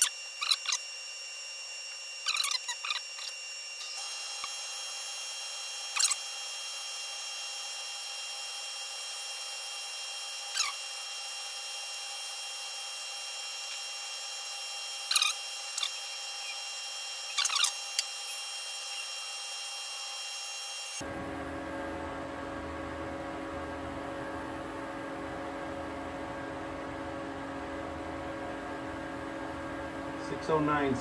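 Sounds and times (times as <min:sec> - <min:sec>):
short squeaks: 0:00.0 - 0:01.0, 0:01.9 - 0:04.6, 0:05.9 - 0:06.2, 0:10.5 - 0:10.9, 0:15.0 - 0:19.1
lathe whine and hiss: 0:00.0 - 0:21.0.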